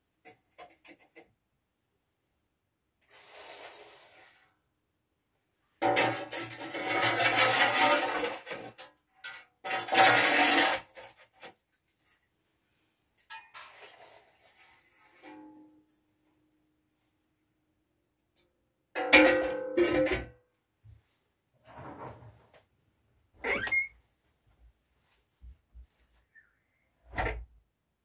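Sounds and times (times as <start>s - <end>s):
metal scoop scraping: 5.8s - 11.4s.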